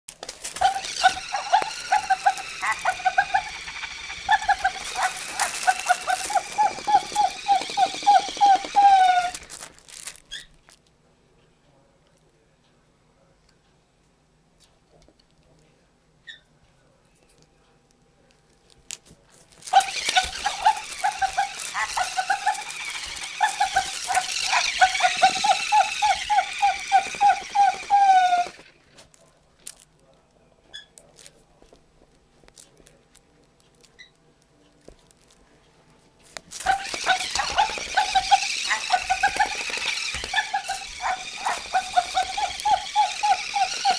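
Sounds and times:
dog toy squeaking: 0.6 - 10.6, 19.7 - 28.7, 36.6 - 43.9.

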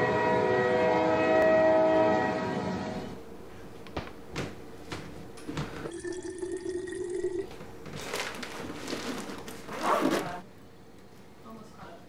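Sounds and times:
items packed into bag: 7.9 - 10.4.

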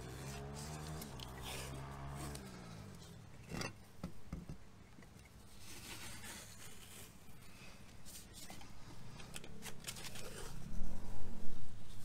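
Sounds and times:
tape unrolling rasp: 0.0 - 2.6.

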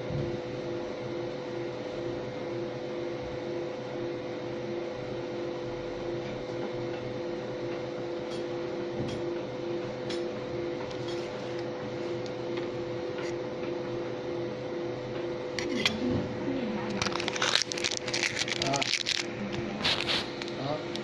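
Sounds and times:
laser machine fan hum: 0.0 - 21.0.

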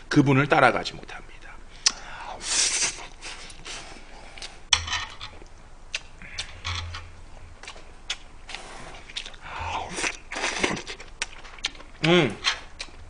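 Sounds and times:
chewing and mouth noises: 5.4 - 13.0.

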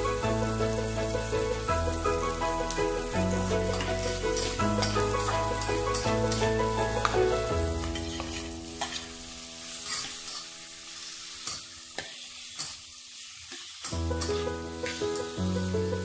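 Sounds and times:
onions sizzling in oil: 0.0 - 16.0
metal spatula scraping pot: 3.7 - 5.3, 7.8 - 9.2, 9.8 - 10.5.

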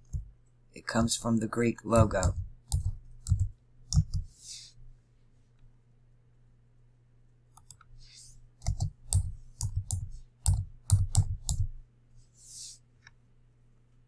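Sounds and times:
computer keyboard typing: 0.0 - 0.3, 1.9 - 4.3, 8.6 - 11.7
faint electrical hum: 0.0 - 14.0.

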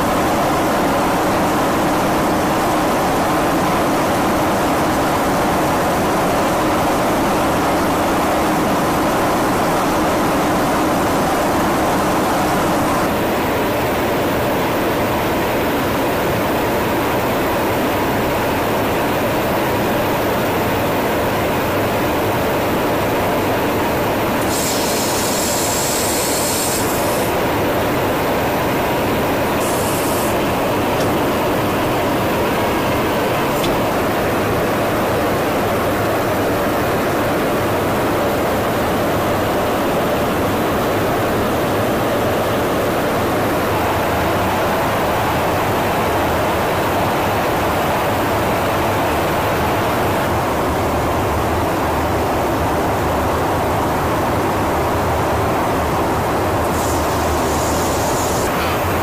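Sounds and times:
jet engine and airflow noise: 0.0 - 59.0
brief high hiss: 24.4 - 27.3, 56.6 - 59.0.

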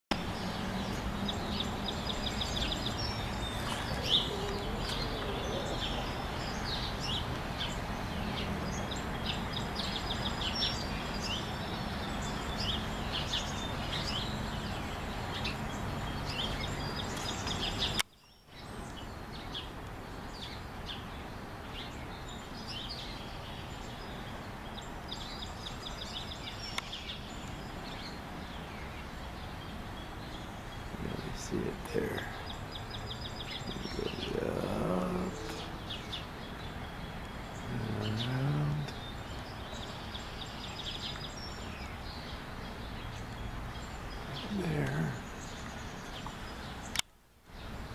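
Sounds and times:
songbirds chirping and trilling: 0.1 - 47.9
low outdoor rumble: 27.2 - 46.7.

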